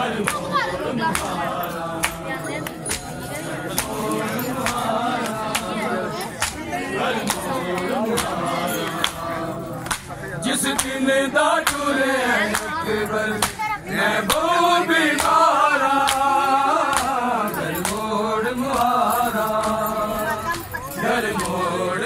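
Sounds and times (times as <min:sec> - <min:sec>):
men chanting in unison: 0:00.0 - 0:22.0
hands slapping chests: 0:01.1 - 0:01.4, 0:02.0 - 0:03.2, 0:06.4 - 0:09.2, 0:09.8 - 0:11.0, 0:12.5 - 0:12.8, 0:15.1 - 0:17.2.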